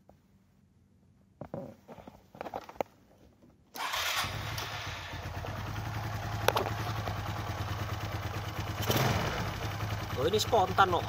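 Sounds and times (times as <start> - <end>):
motorcycle engine idling: 4.3 - 11.0.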